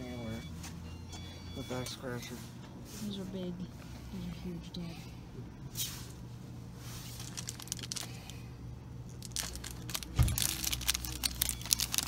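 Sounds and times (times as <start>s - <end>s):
plastic wrap crinkling and rattling: 7.0s - 12.0s.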